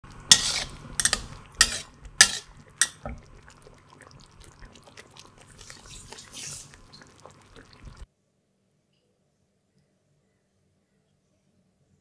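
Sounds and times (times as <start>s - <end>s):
metal spatula striking wok: 0.3s - 3.1s.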